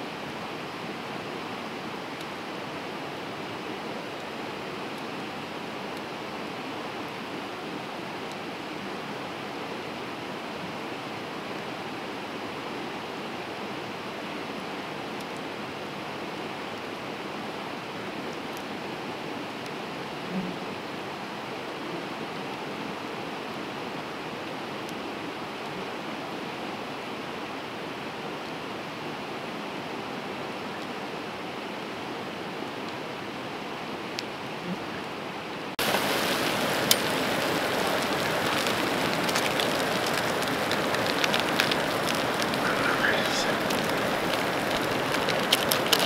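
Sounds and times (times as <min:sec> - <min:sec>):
creek rushing: 0:35.6 - 0:46.0
camp stove burner hissing: 0:35.8 - 0:46.0
soup sizzling in a pot: 0:35.8 - 0:46.0.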